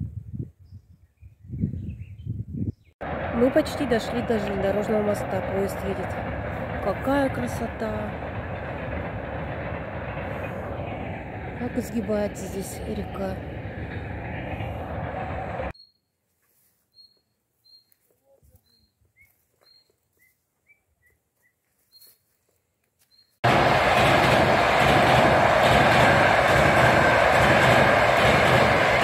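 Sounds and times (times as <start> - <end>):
train rumbling over steel bridge: 3.0 - 15.8, 23.4 - 29.0.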